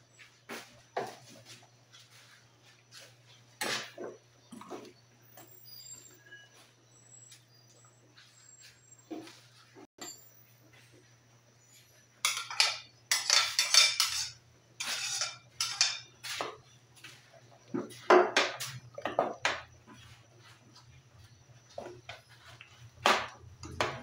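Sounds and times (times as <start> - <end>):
metal spoon scraping pot: 12.2 - 16.2.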